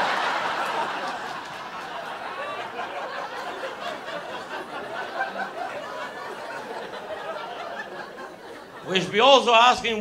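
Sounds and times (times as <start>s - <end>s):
audience laughing: 0.0s - 9.1s.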